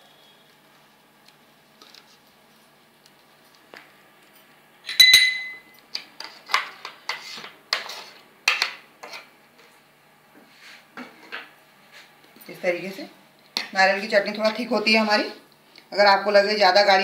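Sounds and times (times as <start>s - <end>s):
spoon clinking on metal: 4.9s - 5.7s.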